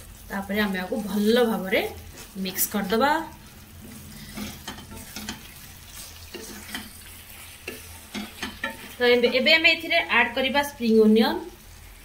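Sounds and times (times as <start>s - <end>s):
food sizzling: 0.0s - 12.0s
spatula scraping a wok: 0.9s - 10.1s.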